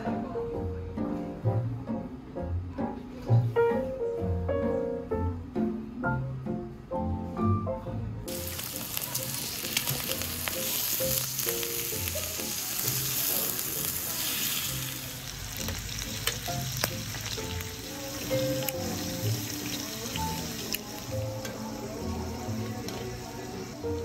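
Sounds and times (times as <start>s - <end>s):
meat sizzling on a grill pan: 8.3s - 24.0s.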